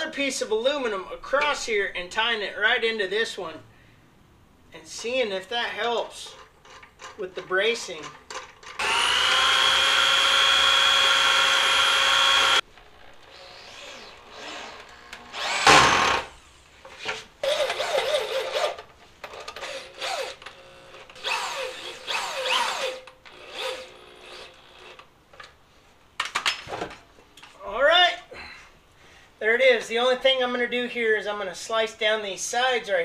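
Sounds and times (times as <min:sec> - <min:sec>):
power drill boring through metal: 0:08.8 - 0:16.3, 0:17.4 - 0:18.8, 0:19.6 - 0:20.4, 0:21.2 - 0:25.0.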